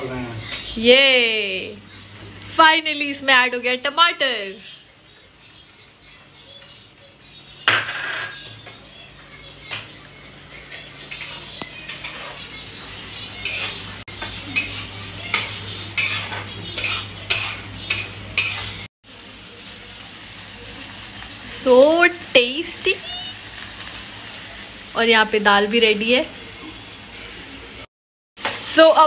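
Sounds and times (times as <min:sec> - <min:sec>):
frying sizzle: 0:00.0 - 0:29.0
spatula scraping metal pan: 0:11.0 - 0:14.0, 0:14.6 - 0:18.9.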